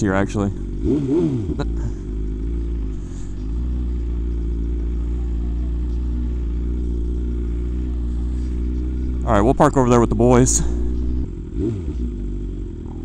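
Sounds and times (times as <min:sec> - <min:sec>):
motorcycle engine at low revs: 0:00.0 - 0:13.0.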